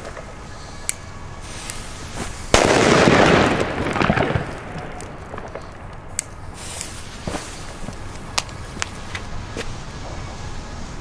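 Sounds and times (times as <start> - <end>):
firework burst: 0.0 - 8.5
sharp cracks: 0.0 - 9.3
firework crackling: 0.0 - 11.0.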